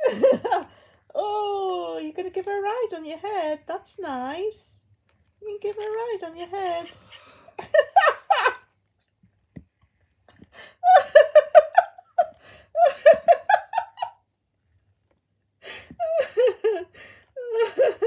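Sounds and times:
person giggling: 0:00.0 - 0:00.7, 0:06.8 - 0:08.7, 0:10.6 - 0:14.2, 0:15.7 - 0:18.0.

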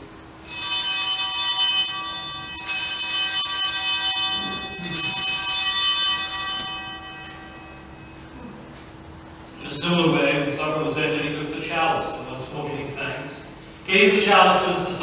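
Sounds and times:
altar bells ringing: 0:00.4 - 0:08.5.

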